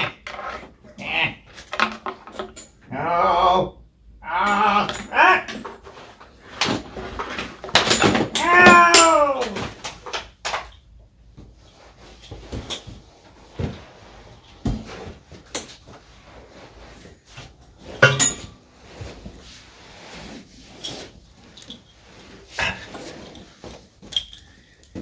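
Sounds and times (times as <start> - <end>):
objects knocking and clunking: 0.0 - 2.9, 4.5 - 16.2, 17.4 - 19.3.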